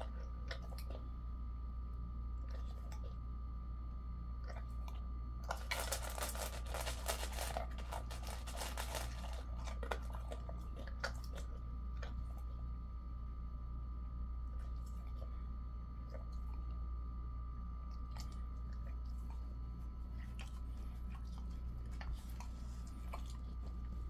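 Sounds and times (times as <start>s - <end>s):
dog crunching dry kibble: 0.0s - 1.1s, 2.4s - 3.2s, 4.4s - 12.7s, 14.5s - 16.8s, 17.8s - 24.0s
low hum: 0.0s - 24.0s.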